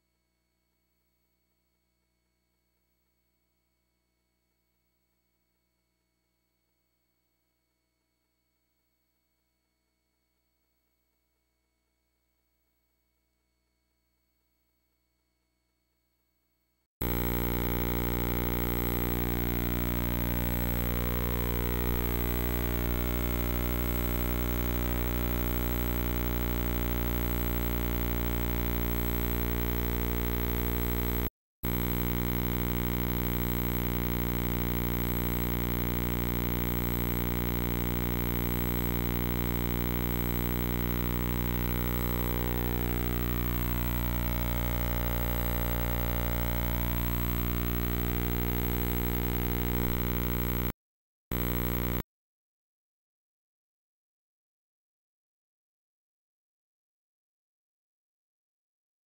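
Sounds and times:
electrical buzz: 0:17.0 - 0:50.7, 0:51.3 - 0:52.0.

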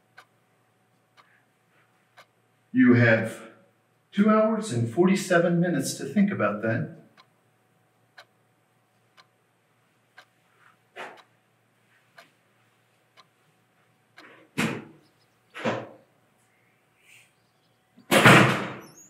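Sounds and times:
wall clock ticking: 0:00.0 - 0:04.5, 0:06.4 - 0:16.4.

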